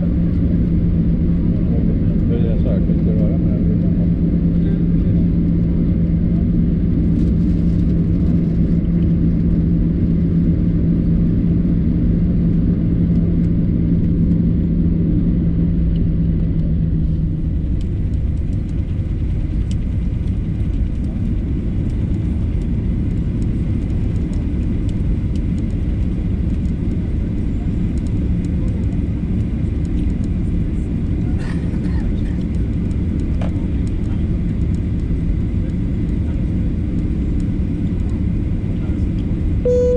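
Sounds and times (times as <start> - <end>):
steady hum: 39.4 - 39.9.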